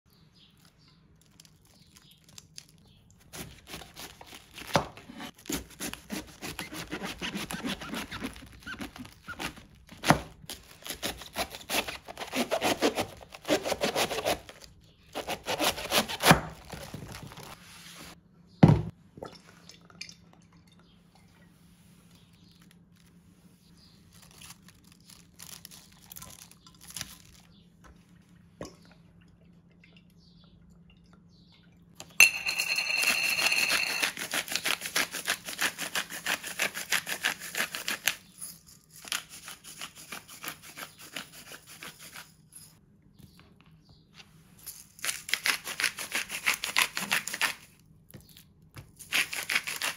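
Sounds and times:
knife chopping cabbage on board: 3.3 - 14.4, 15.1 - 16.8.

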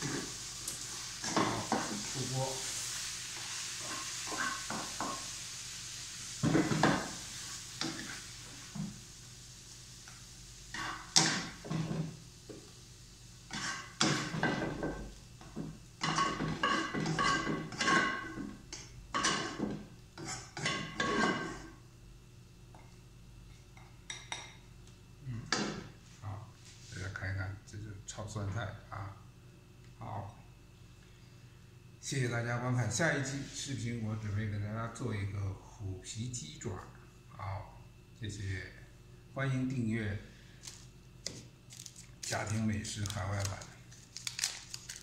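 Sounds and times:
hot wok sizzling: 0.0 - 21.8.

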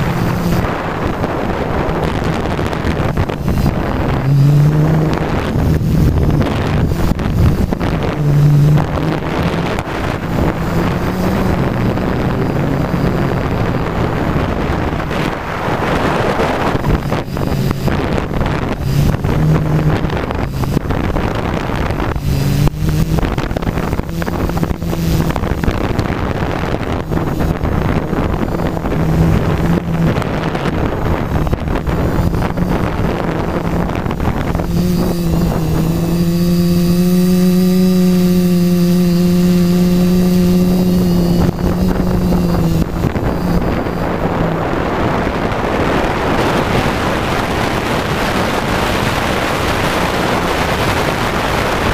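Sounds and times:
drone motors buzzing: 0.0 - 51.9
wind on microphone: 0.0 - 51.9.

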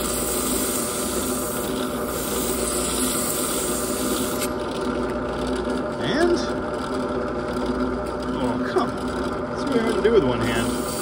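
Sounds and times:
drill press motor hum: 0.0 - 11.0
sandpaper rasping on metal: 10.5 - 11.0.

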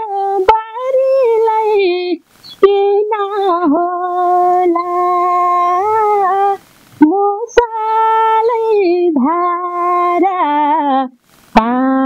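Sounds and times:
woman singing unaccompanied: 0.0 - 12.0.

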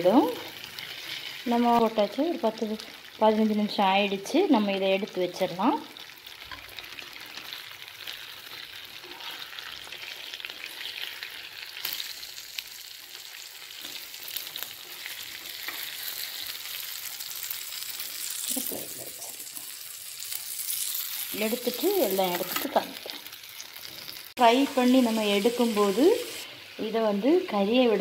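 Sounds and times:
fish frying in oil: 0.0 - 28.0
metal spatula in pan: 6.4 - 7.6, 8.9 - 11.2, 13.8 - 16.5, 21.6 - 24.9.

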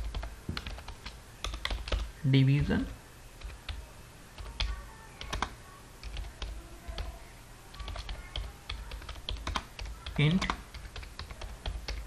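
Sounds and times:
typing on computer keyboard: 0.0 - 2.1, 3.4 - 3.8, 4.4 - 7.1, 7.7 - 12.0.

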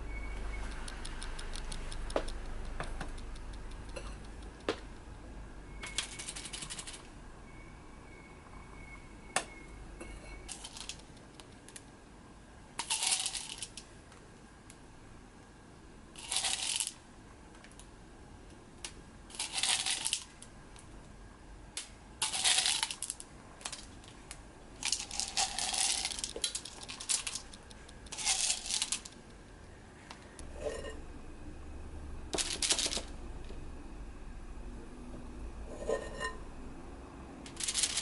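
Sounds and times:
chocolate chips rattling: 5.8 - 7.1, 10.5 - 11.1, 12.8 - 13.8, 16.2 - 17.0, 19.3 - 20.3, 22.2 - 24.1, 24.8 - 29.2, 32.4 - 33.1, 37.5 - 38.0.

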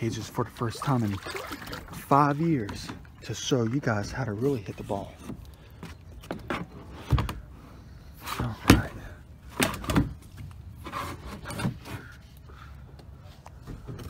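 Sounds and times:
plastic kayak hull knocking and scraping: 0.2 - 7.5, 8.6 - 12.1.

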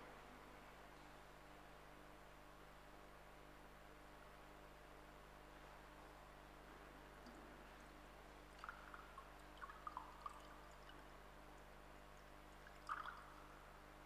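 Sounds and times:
low steady hum: 0.0 - 14.0
liquid pouring: 7.3 - 13.6.

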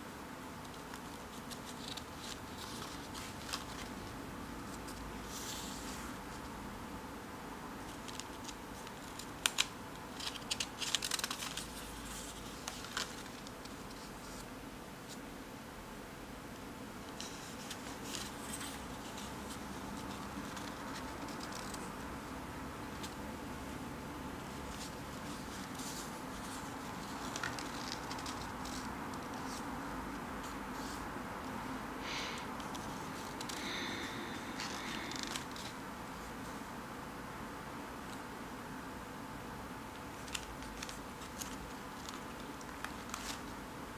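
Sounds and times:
low hiss: 0.0 - 43.9
paper page rustling: 0.6 - 6.5, 7.9 - 15.2, 17.0 - 22.0, 24.4 - 29.7, 30.4 - 31.0, 32.6 - 36.6, 40.0 - 43.6.

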